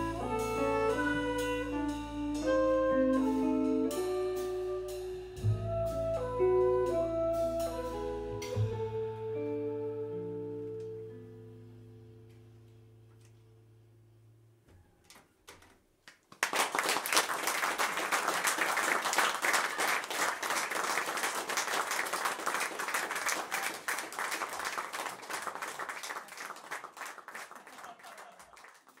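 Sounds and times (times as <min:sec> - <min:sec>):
audience applause: 0:16.1 - 0:29.0.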